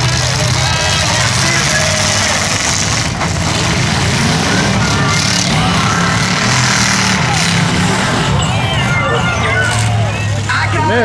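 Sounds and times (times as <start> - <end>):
truck engines revving: 0.0 - 11.0.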